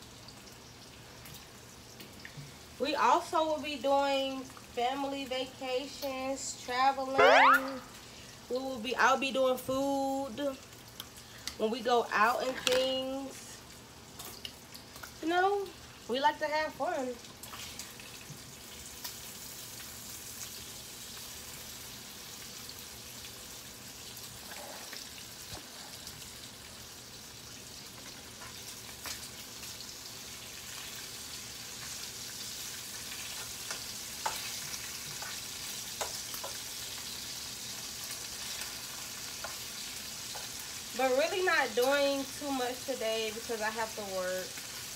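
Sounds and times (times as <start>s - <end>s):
bacon sizzling: 0.0s - 44.9s.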